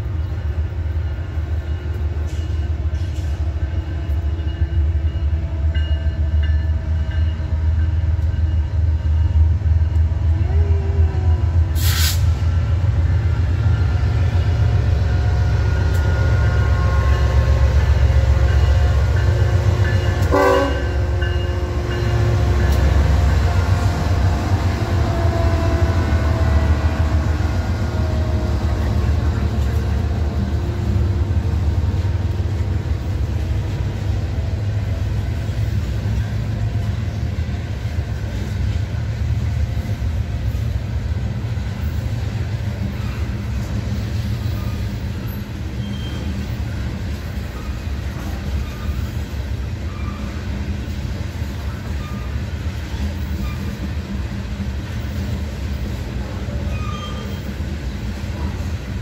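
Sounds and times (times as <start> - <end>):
freight train cars rumbling: 0.0 - 59.0
locomotive engine: 0.0 - 59.0.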